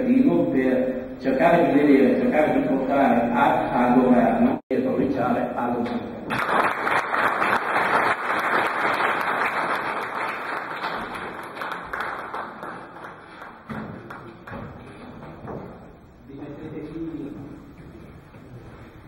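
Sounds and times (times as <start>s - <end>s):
audience applauding: 6.3s - 14.6s.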